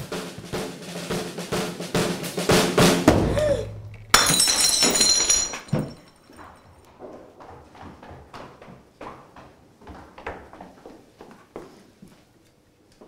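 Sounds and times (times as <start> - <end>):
ceramic cup smashing: 3.9 - 6.3.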